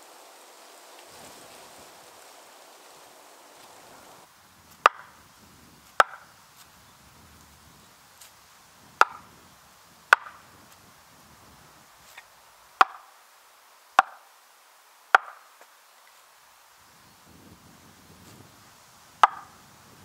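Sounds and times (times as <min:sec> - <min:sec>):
wooden maul knocking on axe: 0:04.8 - 0:05.1, 0:06.0 - 0:06.2, 0:09.0 - 0:09.2, 0:10.1 - 0:10.4, 0:12.8 - 0:13.0, 0:14.0 - 0:14.2, 0:15.1 - 0:15.4, 0:19.2 - 0:19.5.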